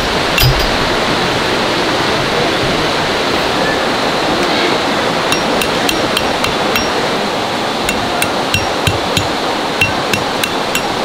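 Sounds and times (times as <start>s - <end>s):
steady rushing noise: 0.0s - 11.0s
hammer striking tent stakes: 0.4s - 0.8s, 5.3s - 7.0s, 7.9s - 11.0s.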